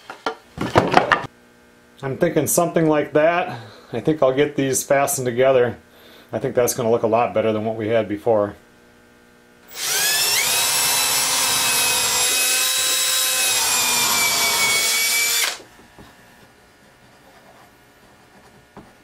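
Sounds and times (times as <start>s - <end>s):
cordless drill drilling into wood: 9.7s - 15.6s.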